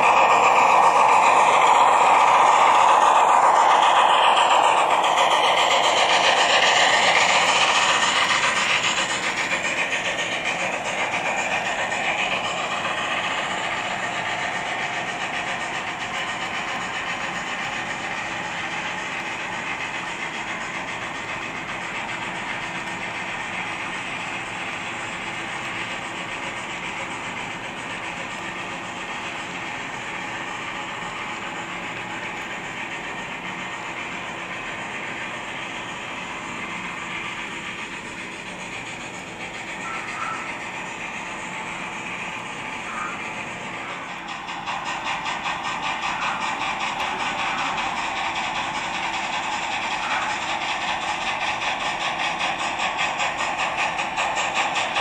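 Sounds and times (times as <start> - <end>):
model steam locomotive sounds: 0.0 - 55.0
model wheels clattering on track: 29.7 - 55.0.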